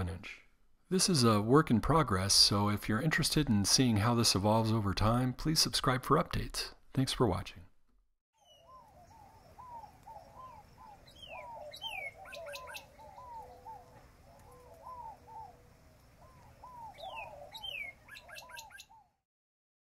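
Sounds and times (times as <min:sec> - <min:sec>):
birds calling: 0:08.4 - 0:19.2.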